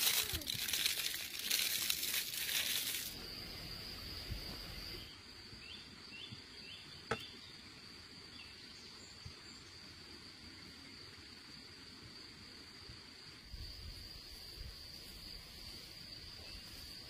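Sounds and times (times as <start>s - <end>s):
crinkling: 0.0s - 3.2s
high-pitched insect trill: 0.0s - 7.3s, 8.4s - 17.0s.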